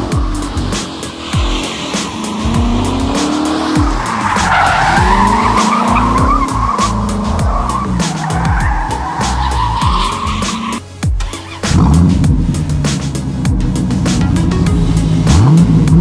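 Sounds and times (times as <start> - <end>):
tires squealing on asphalt: 0.0 - 12.0
car engine revving: 0.0 - 16.0.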